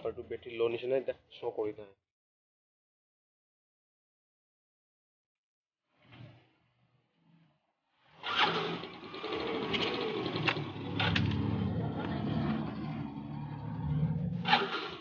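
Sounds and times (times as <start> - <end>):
scooter engine starting and running: 8.2 - 15.0.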